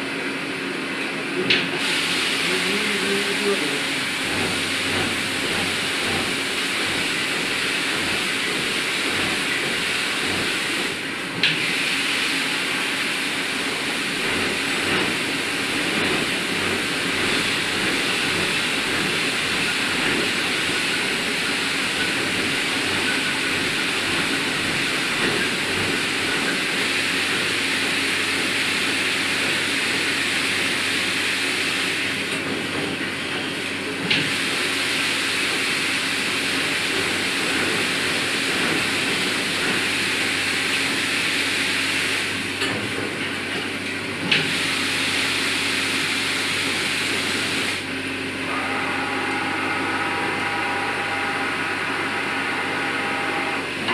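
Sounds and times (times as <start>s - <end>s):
coolant spraying hiss: 1.8s - 11.0s, 11.6s - 32.1s, 44.4s - 48.0s.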